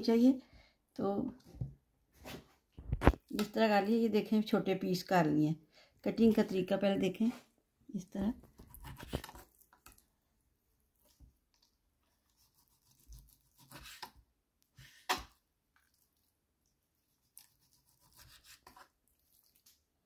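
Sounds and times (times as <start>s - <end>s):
knife slicing meat on wooden board: 12.3s - 14.2s, 17.4s - 18.9s.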